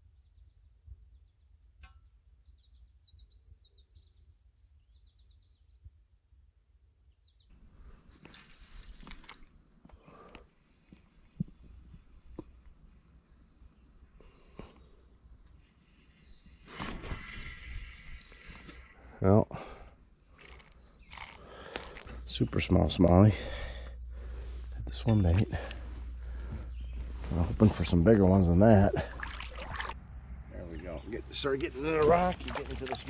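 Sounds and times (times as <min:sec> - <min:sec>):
songbird chirping: 0:00.0 - 0:06.1, 0:06.8 - 0:19.4, 0:20.0 - 0:33.0.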